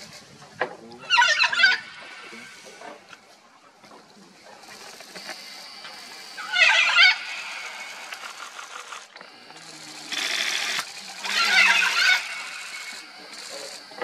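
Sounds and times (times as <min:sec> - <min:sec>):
macaws squawking: 0:01.0 - 0:03.1, 0:04.7 - 0:09.0, 0:10.1 - 0:14.0
fast rattle: 0:04.3 - 0:14.0.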